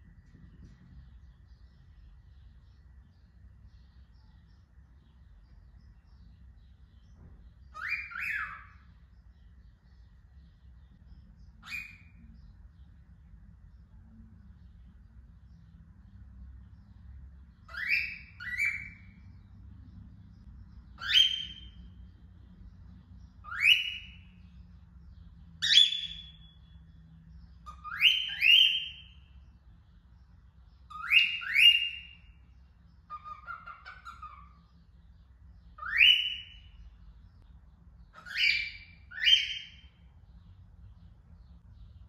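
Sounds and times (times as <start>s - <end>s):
cockatiel whistled calls: 7.7s - 8.8s, 11.6s - 12.2s, 17.7s - 19.2s, 21.0s - 21.8s, 23.4s - 24.2s, 25.6s - 26.6s, 27.6s - 29.2s, 30.9s - 32.3s, 33.1s - 34.6s, 35.8s - 36.8s, 38.1s - 39.9s.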